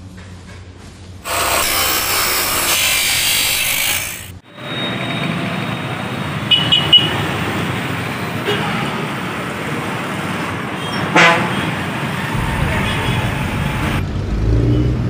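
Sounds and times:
road traffic: 0:01.0 - 0:15.0
angle grinder cutting: 0:01.2 - 0:04.4
motorcycles passing: 0:04.6 - 0:15.0.

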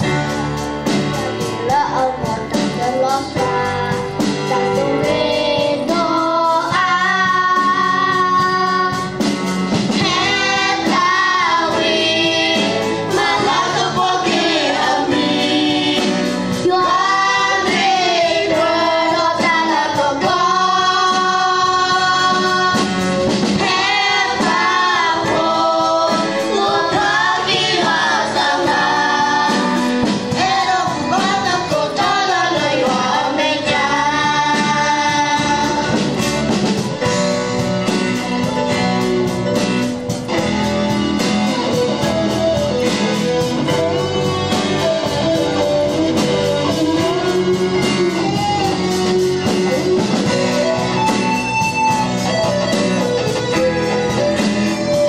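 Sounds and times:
guitar band accompaniment: 0:00.0 - 0:55.0
choir singing a hymn: 0:03.9 - 0:09.2, 0:09.8 - 0:36.6.

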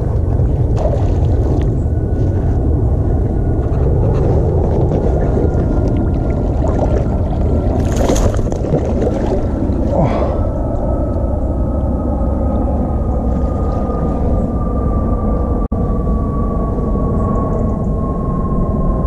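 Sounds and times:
boat motor running: 0:00.0 - 0:15.6
fish splashing at surface: 0:06.2 - 0:09.9.

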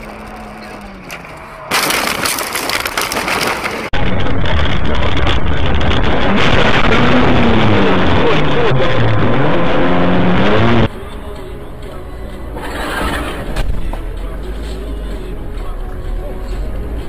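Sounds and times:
background music: 0:09.2 - 0:17.0.

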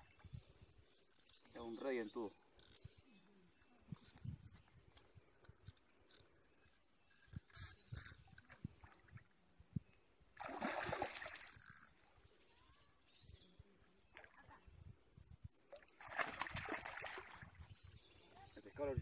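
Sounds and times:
fish splashing at water surface: 0:10.4 - 0:11.9, 0:15.8 - 0:17.6.

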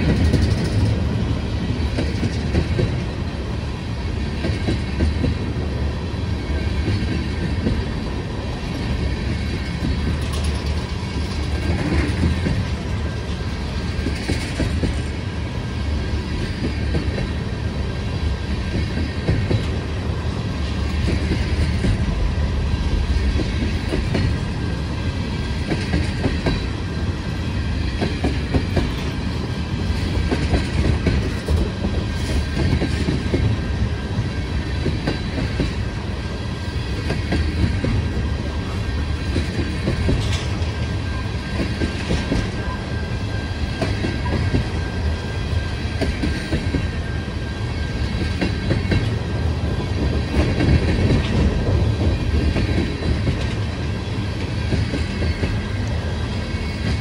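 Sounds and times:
train wheels rumbling on rail: 0:00.0 - 0:57.0
wheels clacking over rail joints: 0:09.2 - 0:12.8.

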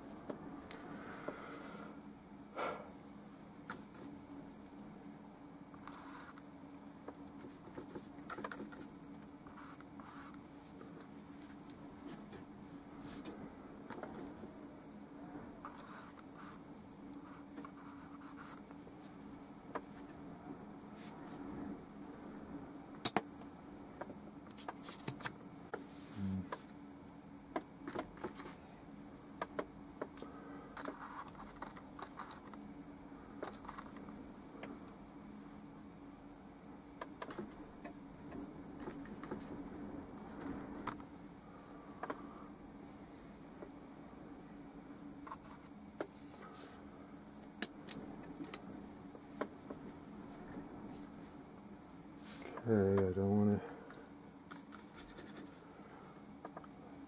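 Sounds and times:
faint room hum: 0:00.0 - 0:57.0.

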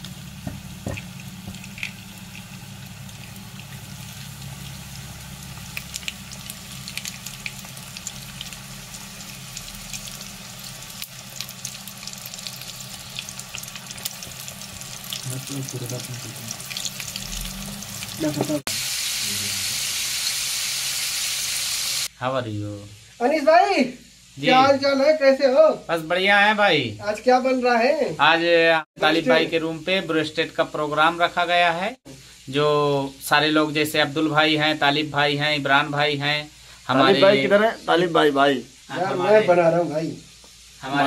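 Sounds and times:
chicken deep-frying in oil: 0:00.0 - 0:22.1.

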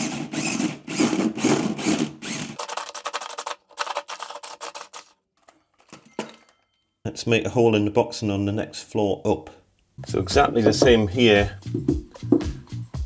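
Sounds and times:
drill with hole saw cutting: 0:00.0 - 0:05.1.

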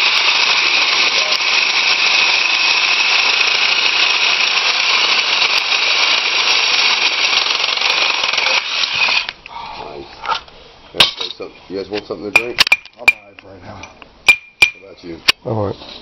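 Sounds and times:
power saw cutting steel pipe: 0:00.0 - 0:09.3.

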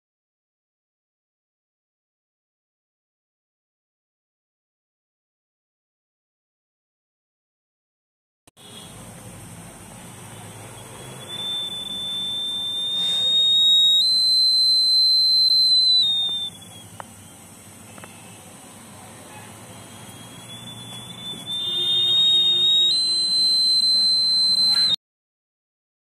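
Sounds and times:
piezo buzzer high-pitched tone: 0:10.8 - 0:16.9, 0:19.8 - 0:25.0.

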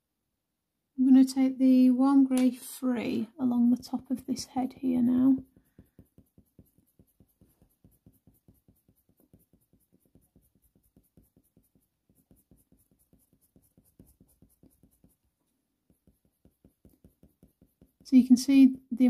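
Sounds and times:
coloured pencil scratching paper: 0:03.8 - 0:18.9.

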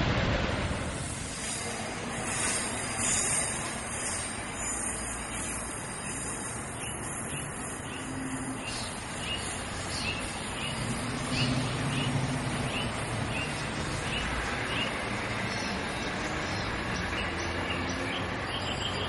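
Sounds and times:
electric railcars rumbling on track: 0:00.0 - 0:19.0
bird chirping: 0:04.6 - 0:19.0.

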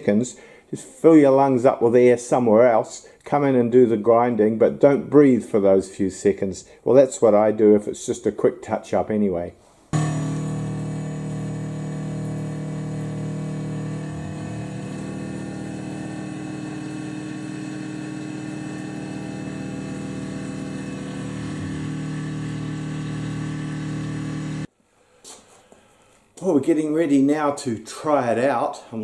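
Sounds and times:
milling machine cutting metal: 0:10.0 - 0:24.7.

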